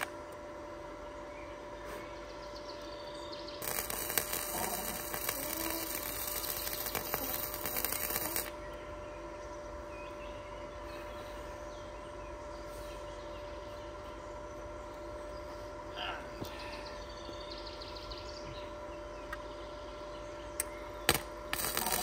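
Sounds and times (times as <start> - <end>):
arc welding sizzling crackle: 0.0 - 0.4, 3.6 - 8.8, 20.6 - 22.0.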